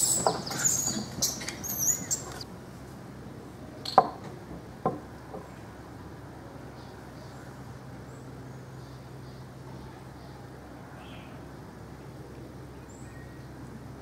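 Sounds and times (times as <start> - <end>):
monkeys squealing: 0.0 - 2.4.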